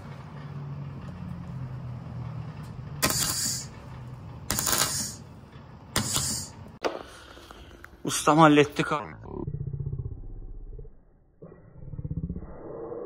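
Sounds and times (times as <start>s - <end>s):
steady low hum: 0.0s - 13.0s
loud hissing bursts: 3.0s - 3.8s, 4.5s - 5.3s, 6.0s - 6.6s.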